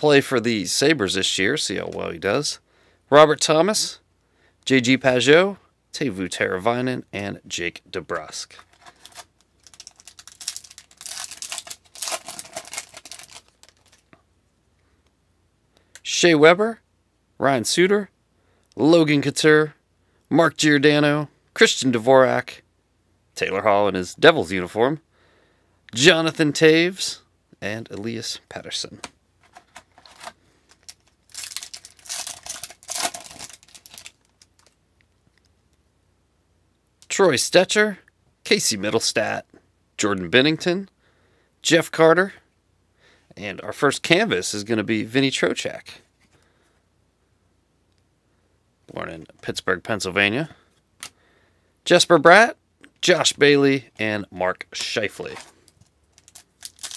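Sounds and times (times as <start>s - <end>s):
foil wrapper crinkling and tearing: 8.6s - 14.1s, 29.5s - 34.8s, 54.8s - 56.9s.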